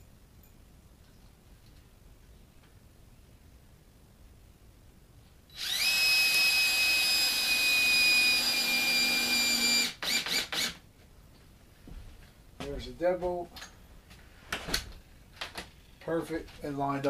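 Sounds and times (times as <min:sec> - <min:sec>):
cordless drill driving a screw: 0:05.5 - 0:10.8.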